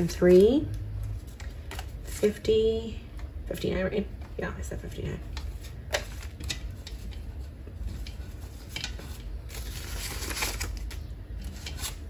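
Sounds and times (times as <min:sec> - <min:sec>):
banknotes rustling and flicking: 0:05.2 - 0:12.0.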